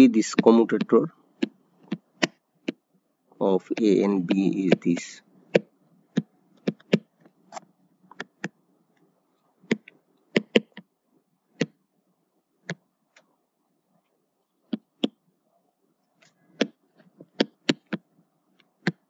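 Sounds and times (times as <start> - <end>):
stylus tapping on tablet: 0.4 - 2.8, 3.7 - 8.6, 9.6 - 10.9, 11.6 - 11.8, 12.6 - 12.8, 14.7 - 15.2, 16.6 - 19.0.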